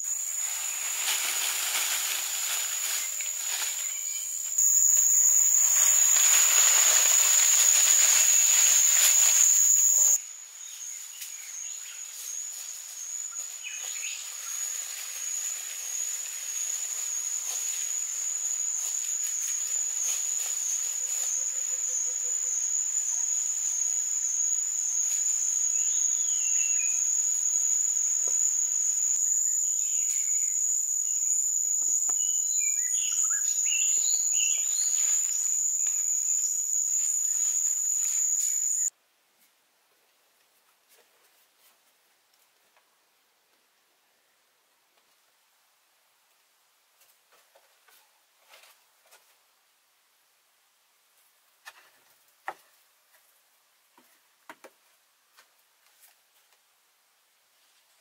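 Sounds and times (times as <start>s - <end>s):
insect chorus drone: 0.0s - 38.9s
loud rustling hiss: 0.0s - 38.9s
bird chirps: 25.5s - 27.4s, 29.7s - 35.5s.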